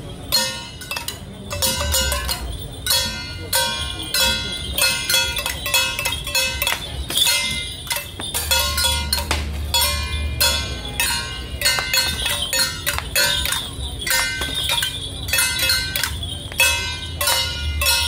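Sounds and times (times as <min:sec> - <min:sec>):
gongs and cymbals struck: 0:08.3 - 0:18.0.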